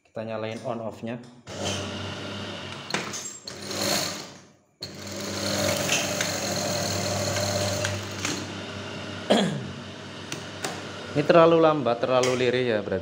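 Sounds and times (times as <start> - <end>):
sewing machine running: 1.5 - 11.7
machine stopping with a knock: 10.2 - 10.9.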